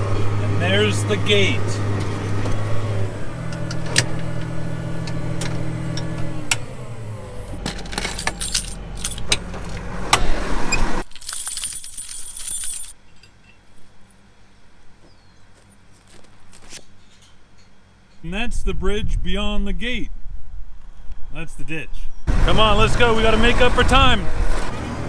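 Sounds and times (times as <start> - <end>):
tractor diesel engine slowing: 0.0 - 11.3.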